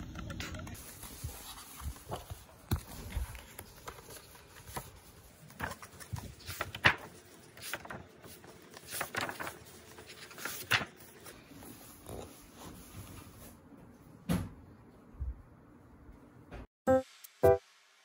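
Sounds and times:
paper pages flipping: 0.1 - 13.5.

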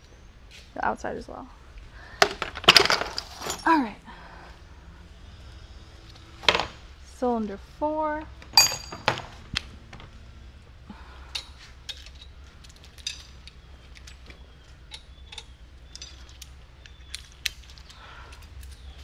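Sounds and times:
steady low hum: 3.3 - 19.0
metallic clicks and clinks: 8.5 - 9.3, 11.3 - 19.0.

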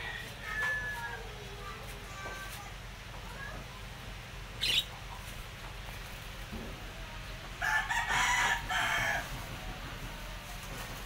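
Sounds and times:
rooster crowing: 7.6 - 9.4.

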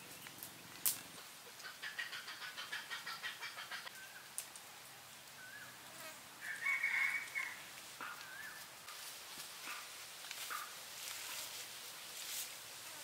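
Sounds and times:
rooster crowing: 6.4 - 7.7.

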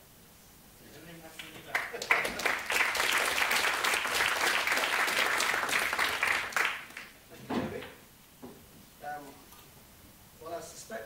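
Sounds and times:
audience applauding: 1.4 - 7.2.

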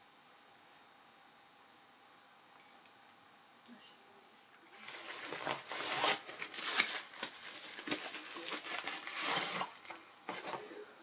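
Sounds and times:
plastic bag crinkling: 4.7 - 10.6.

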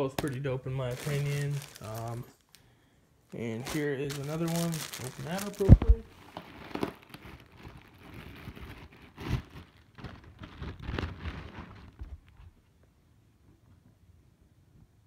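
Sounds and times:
plastic bag crinkling: 0.0 - 2.6, 3.3 - 12.6.

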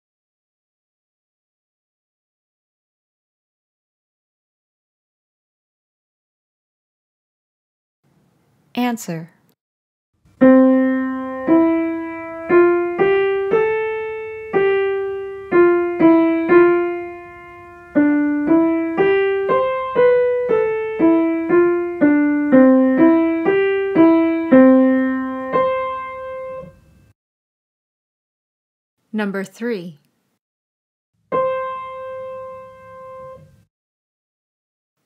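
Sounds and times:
slow piano melody: 10.3 - 27.2, 31.2 - 33.7.

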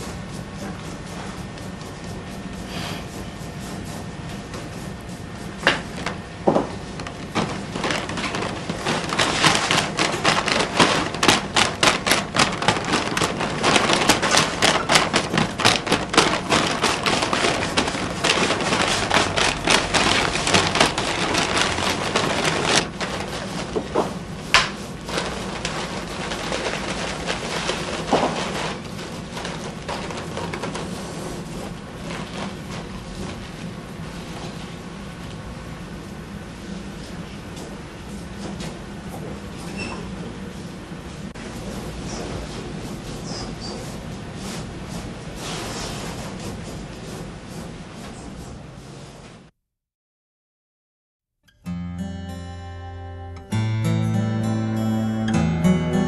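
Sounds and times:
paper rustling and crinkling: 6.8 - 34.8.

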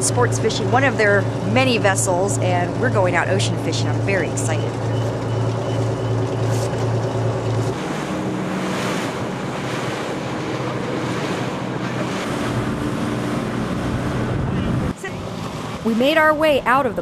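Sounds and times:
water rushing past hull: 0.0 - 16.5
boat engine running: 0.0 - 17.0
low steady hum: 0.0 - 17.0.

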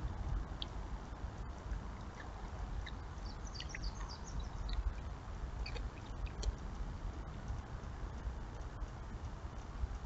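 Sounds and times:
low rumble: 0.0 - 10.0
small bird chirping: 2.8 - 5.0, 5.6 - 6.1.

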